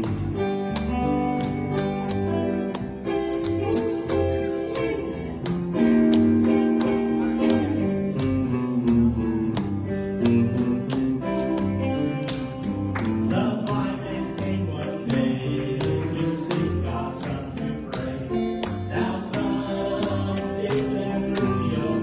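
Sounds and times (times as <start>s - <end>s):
guitar accompaniment: 0.0s - 22.0s
man singing: 13.2s - 22.0s.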